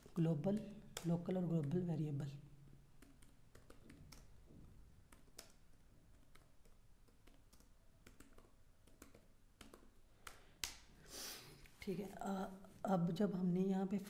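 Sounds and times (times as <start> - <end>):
faint keyboard typing: 0.0 - 10.9.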